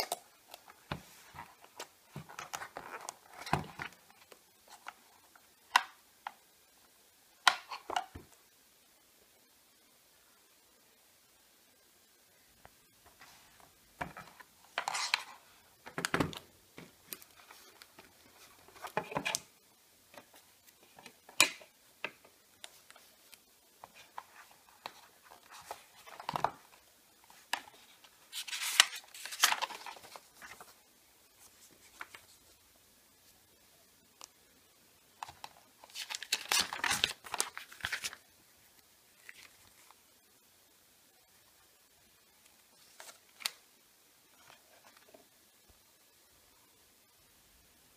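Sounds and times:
cardboard packaging rustling: 23.8 - 30.8, 35.8 - 38.2
paper rustling: 27.3 - 30.8, 35.8 - 38.2.

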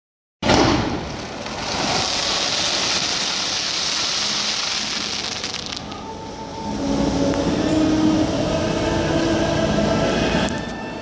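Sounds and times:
fireworks crackling: 0.4 - 6.1.

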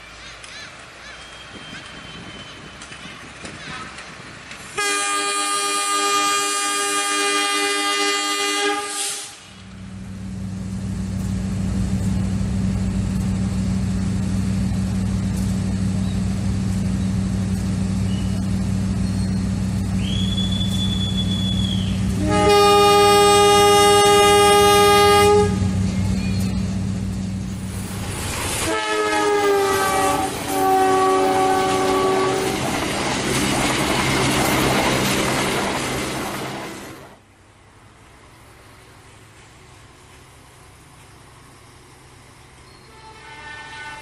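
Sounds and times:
diesel locomotive engine droning: 0.0 - 44.0
locomotive horn: 4.7 - 9.5, 20.0 - 26.6, 28.6 - 32.6, 42.8 - 44.0.

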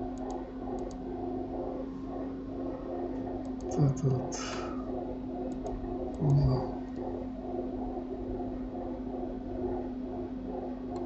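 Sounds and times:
electrical hum and hiss: 0.0 - 11.0
faint clicks: 0.2 - 1.0, 5.5 - 7.1
short low vocal sound: 6.2 - 6.8.

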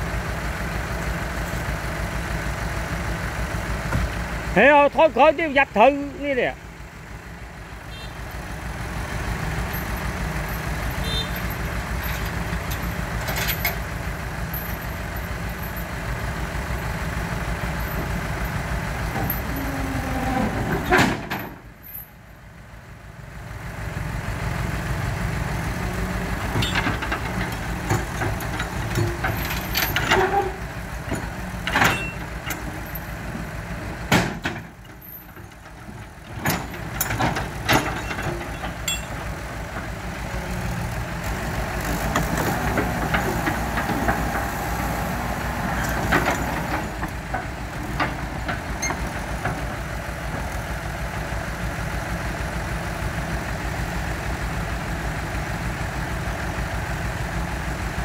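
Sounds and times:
heavy diesel engine running: 0.0 - 58.0
metal ramps clanking: 19.1 - 22.0, 26.5 - 33.0, 34.1 - 39.8.

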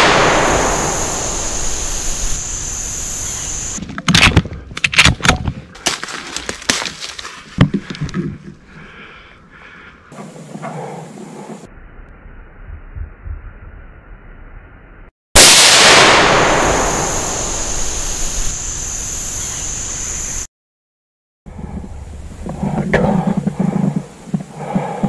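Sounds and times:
high whine: 0.0 - 3.8
steady hiss: 0.0 - 3.8, 16.4 - 20.5
rifle shot: 15.4 - 17.7.

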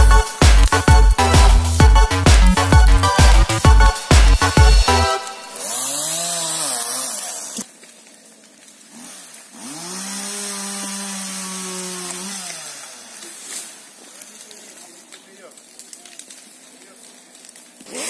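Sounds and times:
chainsaw revving: 4.6 - 7.7, 8.9 - 14.5.

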